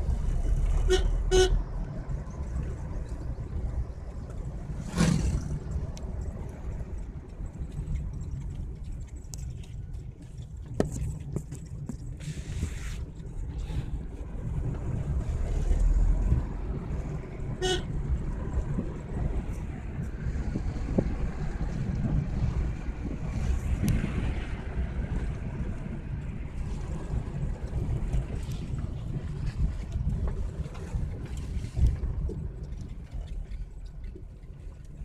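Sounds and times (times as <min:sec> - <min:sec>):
engine and road rumble: 0:00.0 - 0:35.0
car horn toot: 0:00.8 - 0:01.6, 0:17.6 - 0:17.9.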